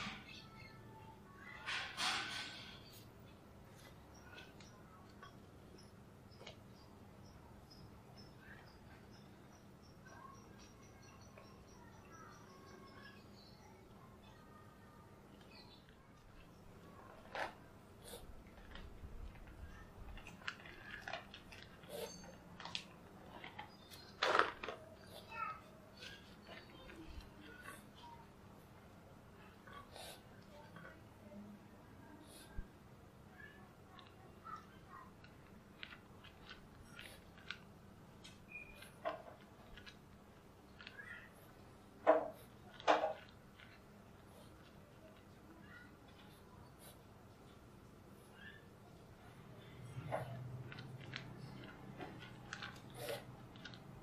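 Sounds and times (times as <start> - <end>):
cats crunching dry kibble: 15.8 - 25.2, 33.7 - 47.7, 49.5 - 54.0.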